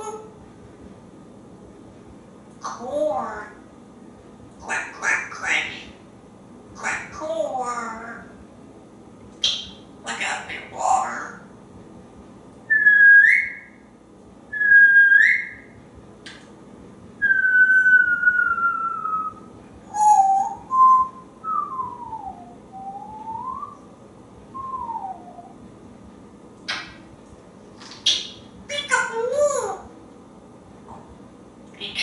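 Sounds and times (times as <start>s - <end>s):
parrot whistling: 9.4s - 10.4s, 12.7s - 13.8s, 14.5s - 15.7s, 17.2s - 23.8s, 24.5s - 25.6s
sharp click: 16.2s - 16.6s.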